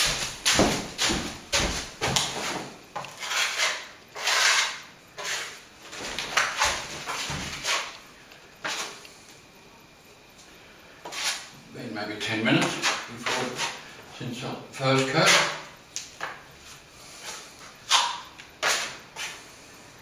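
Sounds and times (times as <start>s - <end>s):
trowel scraping wet plaster: 2.4s - 8.0s, 12.6s - 13.8s, 15.0s - 15.7s.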